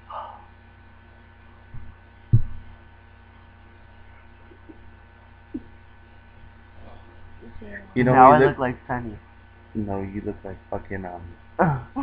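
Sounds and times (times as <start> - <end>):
electrical mains hum: 0.0 - 12.0
sharp low thump: 1.8 - 2.7.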